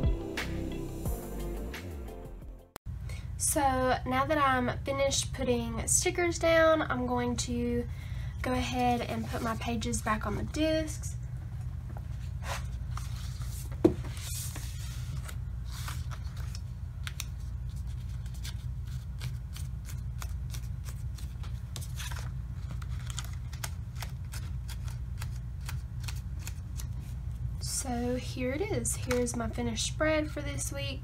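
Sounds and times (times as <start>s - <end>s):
paper rustling: 12.3s - 27.1s.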